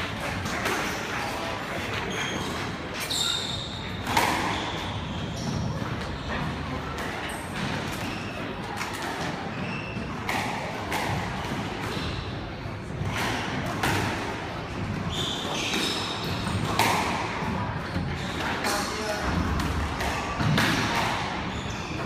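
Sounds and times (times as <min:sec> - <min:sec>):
shoes squeaking on wooden floor: 0:02.0 - 0:06.4
squash ball hits: 0:03.9 - 0:18.6, 0:19.2 - 0:21.5.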